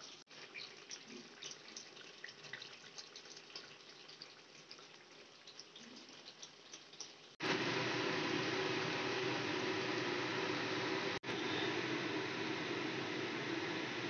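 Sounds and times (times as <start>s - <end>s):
curry bubbling and popping: 0.0s - 7.5s.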